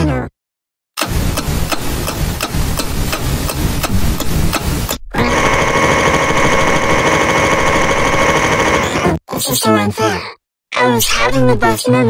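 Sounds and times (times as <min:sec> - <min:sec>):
clock ticking: 0:01.0 - 0:05.0
car engine running: 0:01.0 - 0:08.9.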